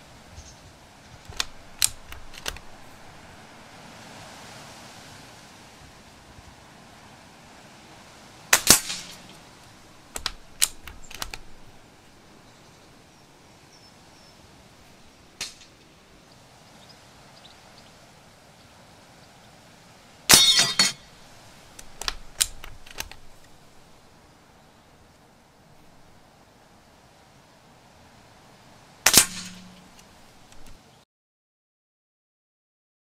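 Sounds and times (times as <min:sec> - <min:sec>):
rifle bolt clicking: 0:01.2 - 0:03.1, 0:08.6 - 0:09.5, 0:10.1 - 0:11.8, 0:20.3 - 0:23.8, 0:29.1 - 0:30.8
air rifle shots: 0:01.2 - 0:03.2, 0:08.5 - 0:11.8, 0:15.4 - 0:15.8, 0:20.3 - 0:23.9, 0:29.0 - 0:30.8.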